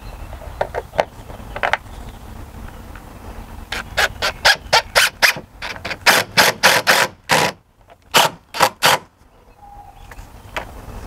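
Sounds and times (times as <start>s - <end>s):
impact driver hammering: 4.4s - 9.1s.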